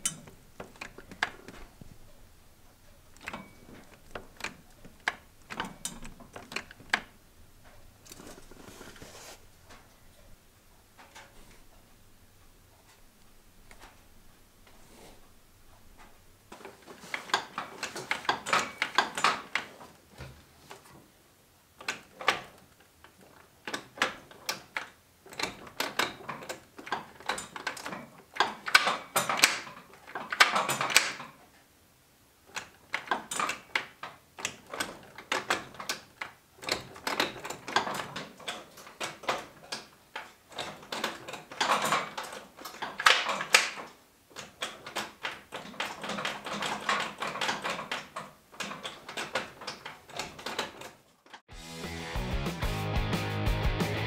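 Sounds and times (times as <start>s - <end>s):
gear linkage clicking and clacking: 0.0s - 2.1s, 2.8s - 8.4s, 15.9s - 19.8s, 21.8s - 31.4s, 32.5s - 51.5s
rubbing: 8.0s - 9.5s.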